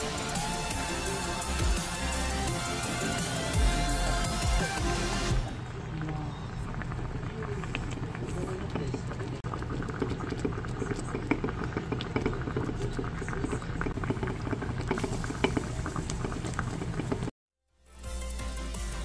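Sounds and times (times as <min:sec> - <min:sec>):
rice foam bubbling and popping: 0:05.6 - 0:17.4.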